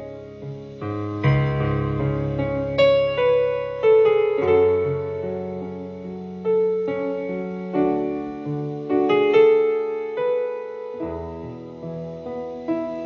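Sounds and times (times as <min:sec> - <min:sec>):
slow soft piano: 0:00.0 - 0:13.0.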